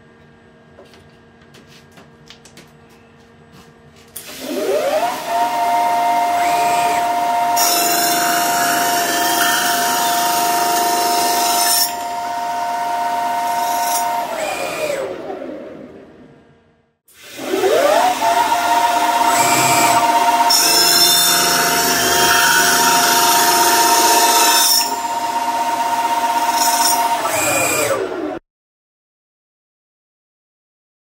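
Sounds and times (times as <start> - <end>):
lathe spindle whine: 4.2 - 15.4, 17.2 - 28.4
saw cutting aluminium hiss: 19.0 - 25.2.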